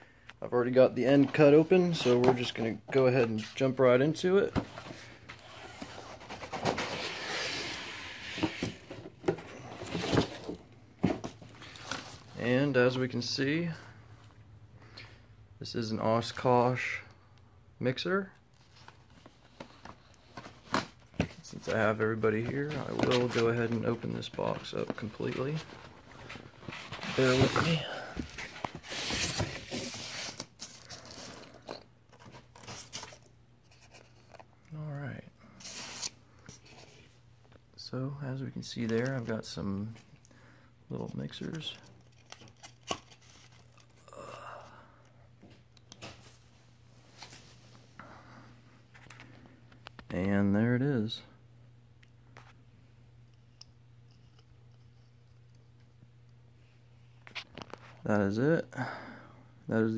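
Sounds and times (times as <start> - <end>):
cardboard sliding and rustling: 4.5 - 12.2, 24.9 - 31.3.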